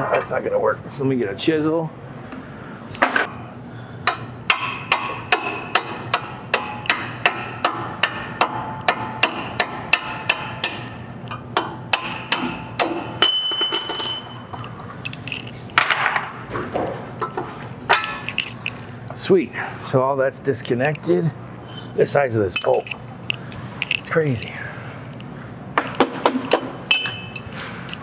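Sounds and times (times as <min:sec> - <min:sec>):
hammer striking metal: 0:04.1 - 0:11.0, 0:11.6 - 0:14.6, 0:25.8 - 0:27.5
high metallic ring: 0:12.8 - 0:14.8, 0:26.0 - 0:27.5.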